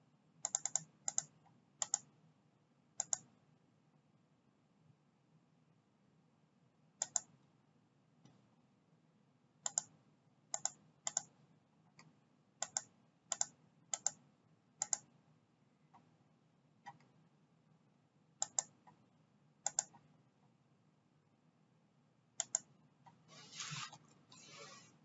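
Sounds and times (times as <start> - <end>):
computer mouse clicks: 0.4 - 2.1, 3.0 - 3.3, 7.0 - 7.3, 9.6 - 11.4, 12.0 - 14.2, 14.8 - 15.1, 16.8 - 17.2, 18.4 - 19.0, 19.6 - 20.1, 22.4 - 23.2.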